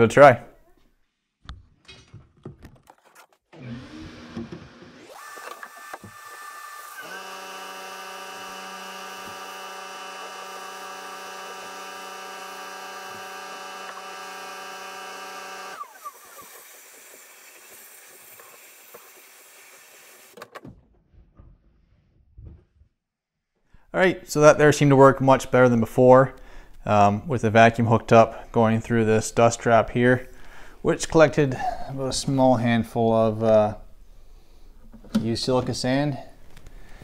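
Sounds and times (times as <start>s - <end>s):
sand blaster hiss: 15.8s - 20.4s.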